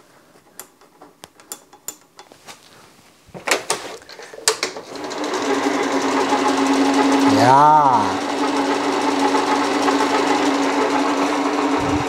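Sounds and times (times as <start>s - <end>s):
electric mower drive whining: 4.7s - 12.0s.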